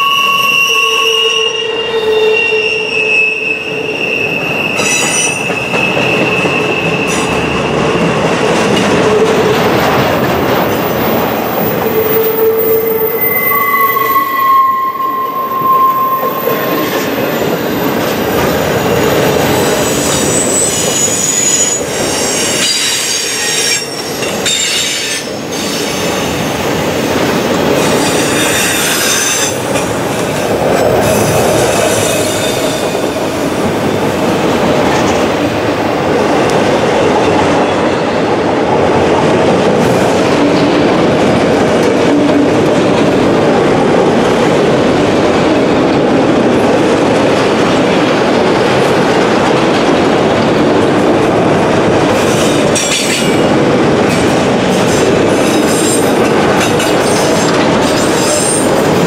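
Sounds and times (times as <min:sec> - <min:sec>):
high-pitched wheel squeals: 0:00.0 - 0:07.4, 0:11.8 - 0:17.2, 0:19.9 - 0:25.8
train wheels rumbling on rail: 0:00.0 - 0:59.0.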